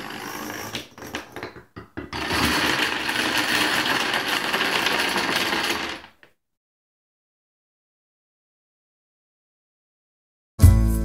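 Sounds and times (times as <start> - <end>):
plastic dominoes clattering: 2.5 - 6.3
dominoes toppling: 2.6 - 6.2.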